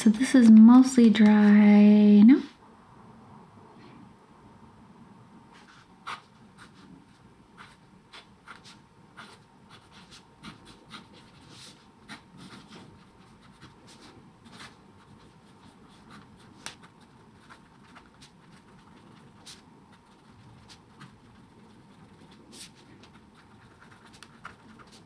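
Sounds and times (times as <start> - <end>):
pen nib scratching paper: 7.6 - 25.0.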